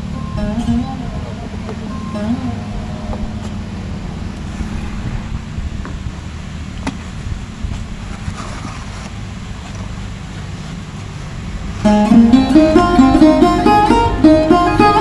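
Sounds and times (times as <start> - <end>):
plucked string music: 0.0 - 4.6, 11.8 - 15.0
low rumble with faint hum: 0.0 - 14.9.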